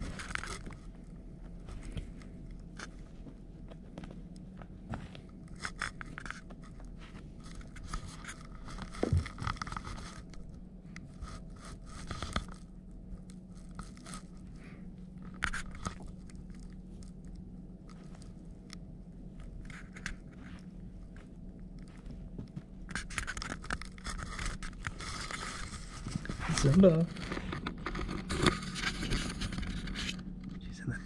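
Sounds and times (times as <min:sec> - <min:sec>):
kitten rustling toy on carpet: 0:00.0 - 0:12.8, 0:19.3 - 0:30.3
steady low hum: 0:00.0 - 0:31.0.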